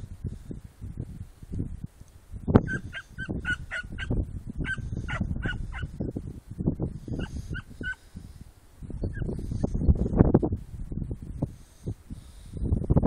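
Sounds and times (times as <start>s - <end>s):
puppies yelping: 2.7s - 4.1s, 4.7s - 5.9s.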